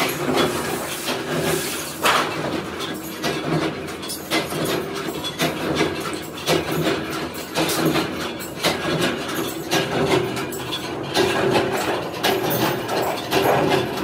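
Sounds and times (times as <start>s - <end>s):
metal sheet rattling: 0.2s - 2.6s
metal sheet being scraped: 0.3s - 2.4s.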